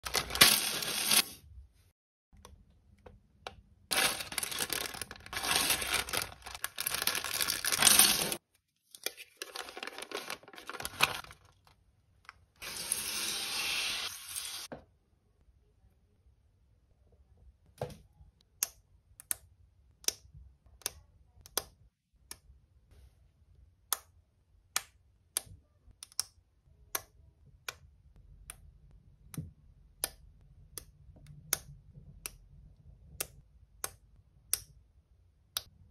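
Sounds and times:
plastic bag crinkling and tearing: 0:00.0 - 0:01.2, 0:03.9 - 0:08.4, 0:09.1 - 0:11.6.

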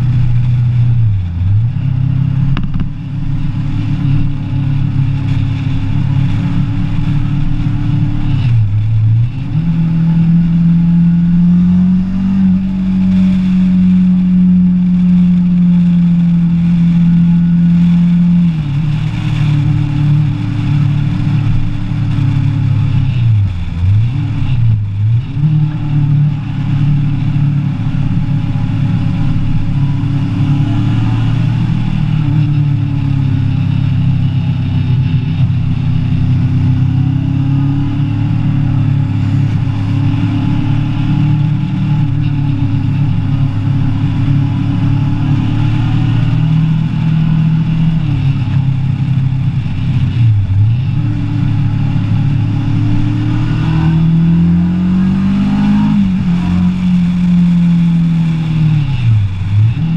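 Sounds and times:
motorcycle engine under load: 0:00.0 - 0:09.6
rushing wind noise: 0:00.0 - 0:59.9.

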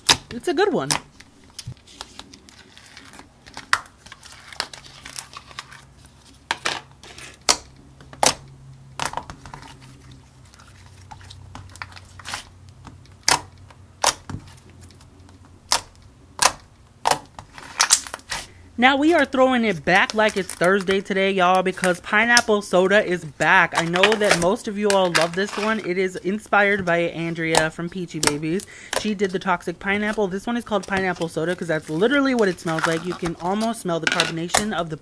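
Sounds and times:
plastic tub crinkling: 0:17.4 - 0:35.0.

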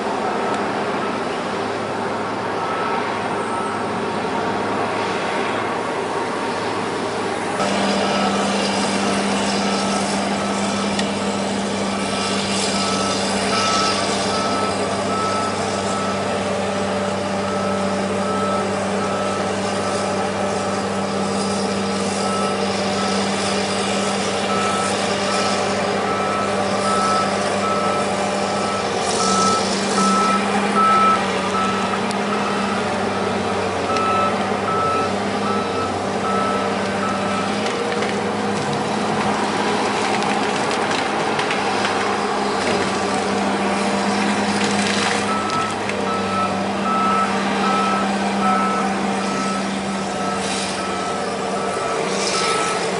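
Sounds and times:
diesel engine running: 0:00.0 - 0:52.9
warning alarm beeping: 0:07.6 - 0:21.3, 0:24.5 - 0:33.3, 0:33.9 - 0:37.5, 0:45.2 - 0:52.8.

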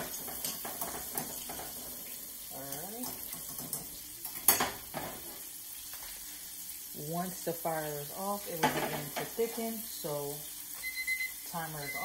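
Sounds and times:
spoon stirring in saucepan: 0:00.0 - 0:06.4
chicken frying in oil: 0:00.0 - 0:12.0.

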